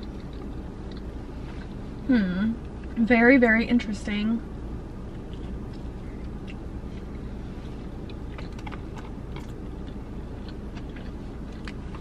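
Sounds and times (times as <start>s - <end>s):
mouth chewing clicks and smacks: 0.0s - 1.2s, 5.0s - 12.0s
steady low hum: 0.0s - 12.0s.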